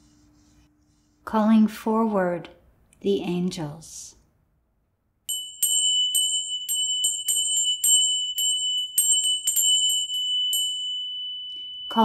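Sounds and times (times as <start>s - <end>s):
small high-pitched bell ringing: 5.3s - 12.0s.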